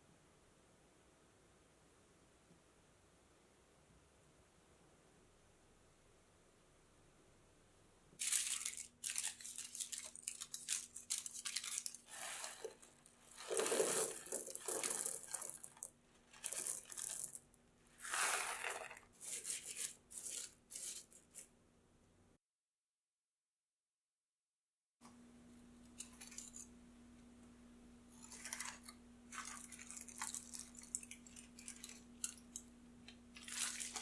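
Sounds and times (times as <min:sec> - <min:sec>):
pie weights rattling onto foil: 0:08.2 - 0:17.4, 0:28.2 - 0:32.6, 0:33.4 - 0:34.0
aluminium foil crinkling: 0:08.2 - 0:21.5, 0:28.2 - 0:32.7, 0:33.3 - 0:34.0.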